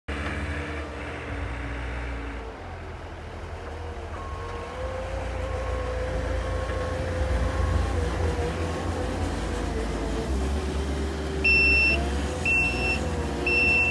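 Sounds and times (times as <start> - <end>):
diesel engine under load: 0.1 - 13.9
short beeps: 11.4 - 13.9.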